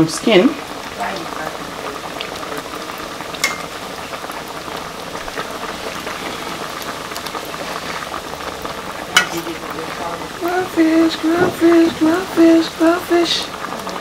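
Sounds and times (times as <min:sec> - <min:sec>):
soup bubbling: 0:00.0 - 0:14.0
spoon clinking on steel pot: 0:03.4 - 0:03.7, 0:09.2 - 0:09.4
spoon stirring: 0:09.2 - 0:09.6.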